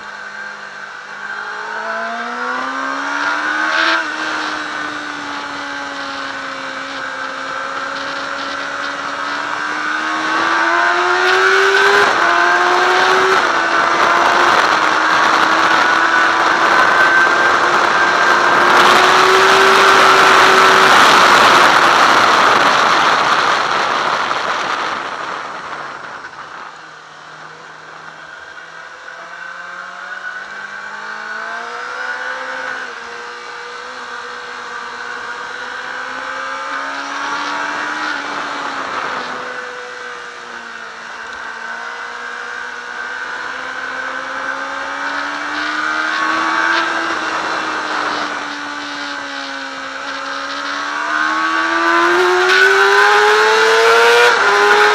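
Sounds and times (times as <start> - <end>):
motorcycle engine revving: 0.0 - 54.9
wind rush on microphone: 3.7 - 27.0, 36.0 - 40.7.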